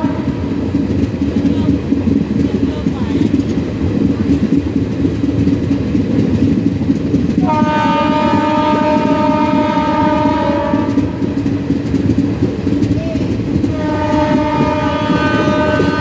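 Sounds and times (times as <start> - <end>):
train horn long blast: 0.0 - 0.6, 7.4 - 11.4, 13.6 - 16.0
train rumbling on rails: 0.0 - 16.0.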